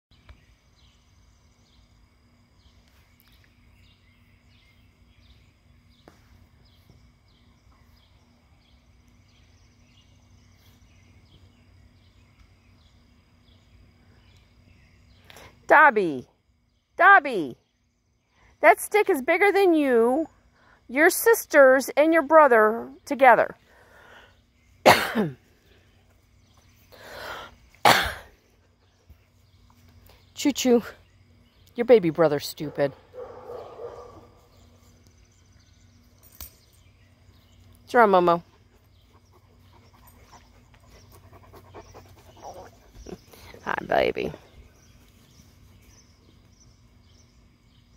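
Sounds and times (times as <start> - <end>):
steady high hum: 0.1 - 47.9
person coughing: 24.9 - 25.4, 27.8 - 28.3.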